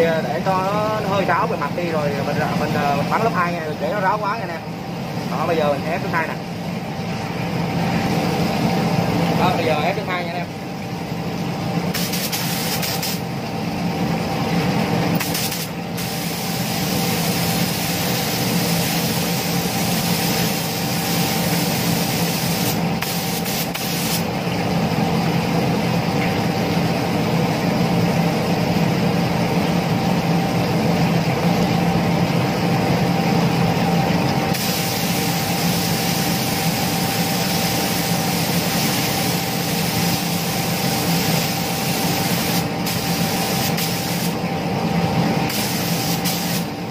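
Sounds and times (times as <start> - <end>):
spray gun hissing: 11.9 - 13.2, 15.2 - 24.3, 34.5 - 44.4, 45.5 - 46.8.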